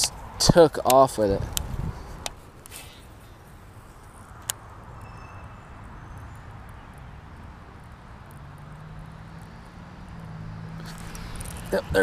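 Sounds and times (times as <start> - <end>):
faint high chirps: 5.0 - 6.7.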